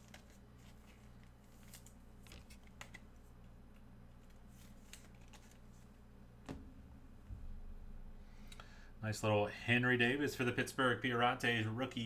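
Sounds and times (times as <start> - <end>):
trading cards being handled: 0.0 - 6.0.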